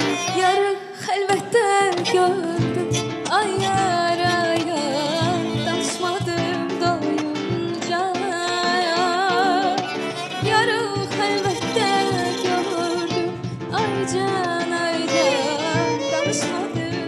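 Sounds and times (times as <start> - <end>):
acoustic guitar: 0.0 - 17.0
cajon: 0.0 - 17.0
violin: 0.0 - 17.0
woman singing with vibrato: 0.0 - 17.0.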